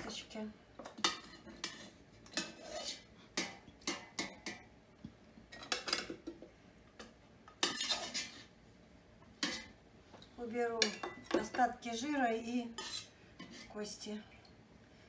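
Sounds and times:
metal utensils clinking on pot: 0:07.5 - 0:08.4, 0:10.8 - 0:11.8.

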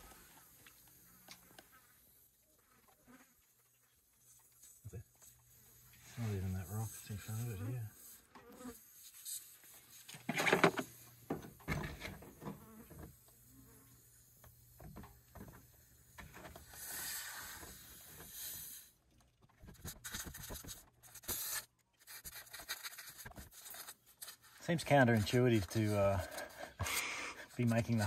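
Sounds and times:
reamer rubbing and scraping in tyre: 0:05.2 - 0:10.9, 0:19.7 - 0:28.0.

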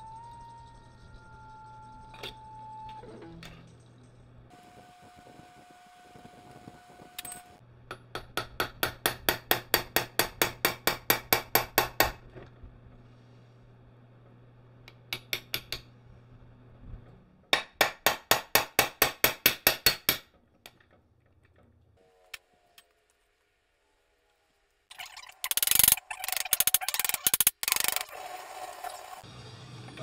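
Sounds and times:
hammer tapping steel shaft: 0:07.2 - 0:12.2, 0:14.8 - 0:15.9.

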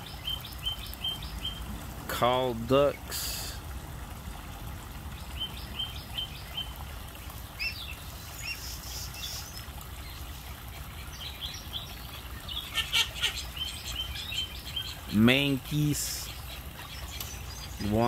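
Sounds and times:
goslings peeping: 0:07.5 - 0:18.0.

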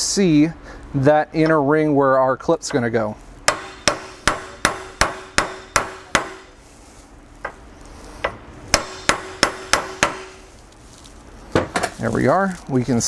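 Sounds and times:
hammer tapping metal: 0:03.5 - 0:06.5, 0:08.2 - 0:10.4.

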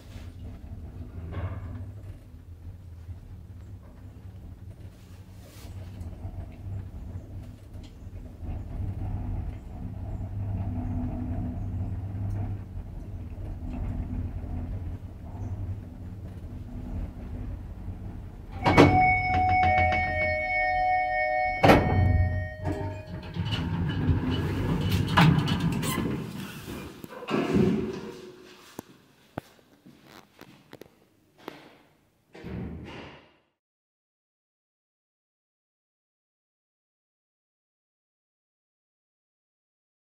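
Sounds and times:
lift humming: 0:00.0 - 0:26.9
lift stopping with clunk: 0:05.8 - 0:26.2
lift doors clattering open: 0:06.0 - 0:28.4
metallic ringing: 0:18.5 - 0:24.0.

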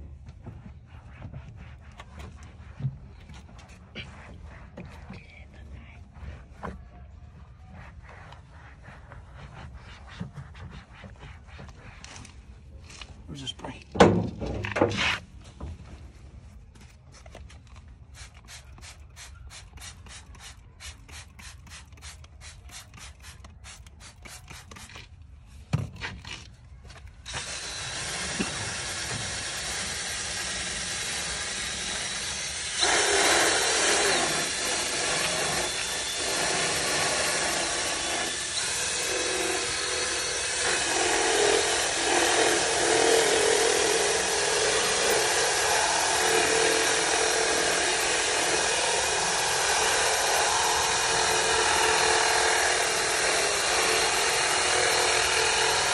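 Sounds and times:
spray bottle squirting: 0:18.1 - 0:25.1
drill brush scrubbing upholstery: 0:27.3 - 0:55.9.

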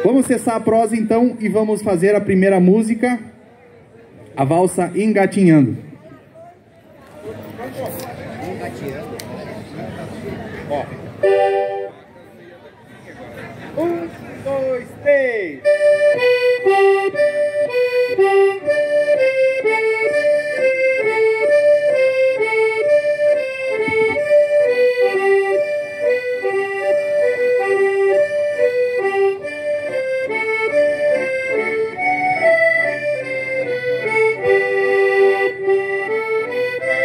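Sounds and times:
button accordions playing waltz: 0:11.2 - 0:12.0, 0:15.6 - 0:37.0.

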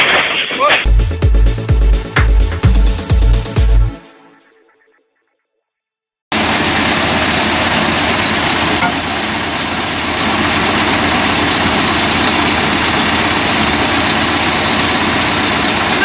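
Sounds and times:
heavy vehicle engine running: 0:06.3 - 0:16.0
thin high whine: 0:06.3 - 0:16.0.

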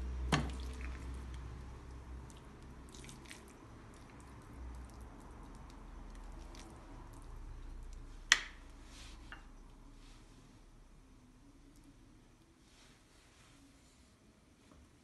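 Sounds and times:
spoon squishing stuffing: 0:00.4 - 0:08.1.

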